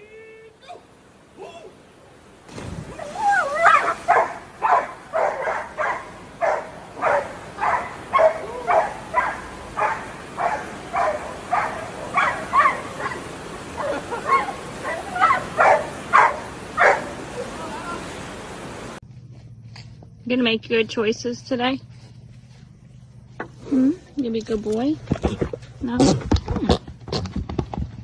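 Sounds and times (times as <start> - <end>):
dog barking: 3.6 - 17.2.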